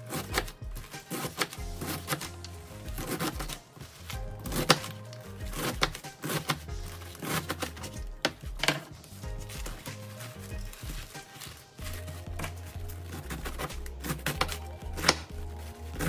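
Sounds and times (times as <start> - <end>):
background music: 0.0 - 16.0
knife chopping on plastic board: 0.1 - 8.9, 12.4 - 16.0.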